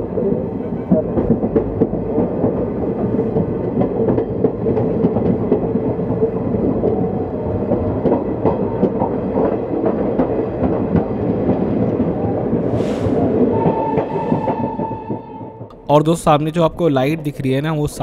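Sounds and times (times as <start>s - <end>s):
wheels clattering over rail joints: 0.0s - 12.3s
train coach rumbling: 0.0s - 18.0s.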